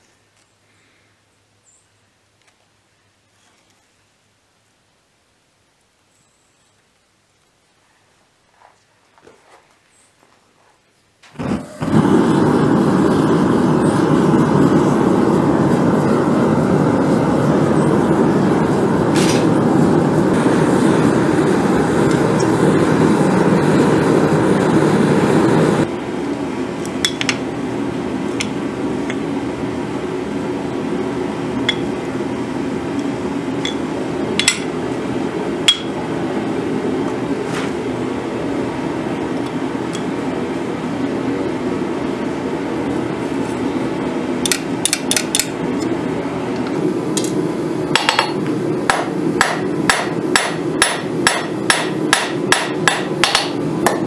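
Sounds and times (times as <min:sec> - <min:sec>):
forge fire blowing: 0:11.2 - 0:54.0.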